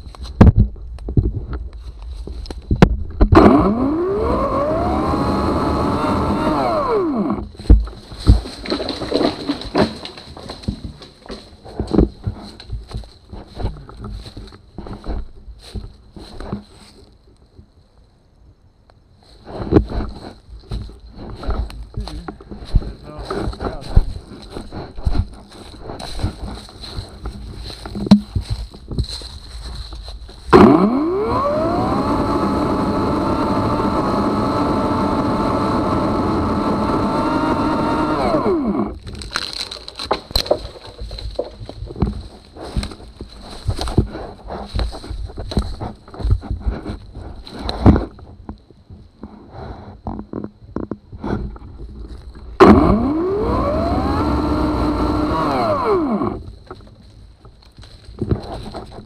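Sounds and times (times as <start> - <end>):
sharp wood cracks: 0.0 - 16.7, 19.6 - 48.6, 52.2 - 59.0
chainsaw cutting through wood: 3.3 - 11.4, 30.5 - 40.6, 52.6 - 56.5
chainsaw motor whine: 3.3 - 11.4, 30.5 - 39.7, 52.6 - 56.6
dry leaves crunching: 3.8 - 17.2, 20.1 - 47.6, 51.9 - 59.0.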